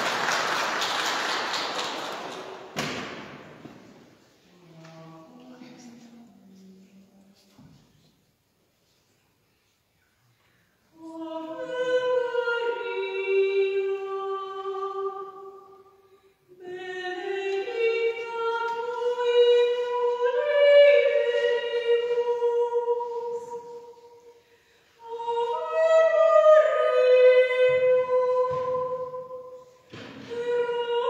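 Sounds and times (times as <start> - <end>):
women's choir singing: 11.0 - 15.8, 16.6 - 24.4, 25.0 - 31.0.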